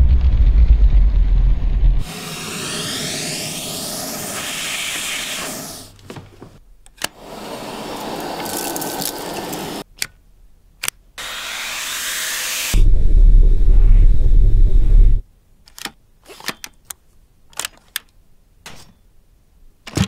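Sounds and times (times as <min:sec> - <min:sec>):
vacuum cleaner running: 0:02.1 - 0:05.9, 0:07.2 - 0:09.8, 0:11.2 - 0:12.8.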